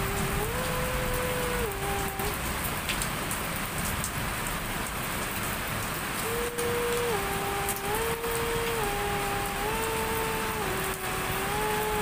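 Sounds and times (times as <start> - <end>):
two-tone siren: 0.0 - 2.4, 6.2 - 12.0
heavy rain pouring: 0.0 - 12.0.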